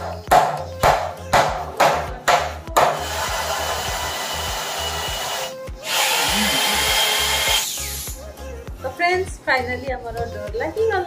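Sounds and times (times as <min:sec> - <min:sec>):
electric drill drilling metal: 0:03.0 - 0:08.2.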